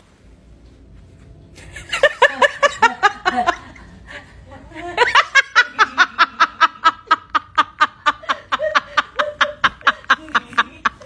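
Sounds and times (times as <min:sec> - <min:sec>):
person snickering: 0:05.6 - 0:11.0.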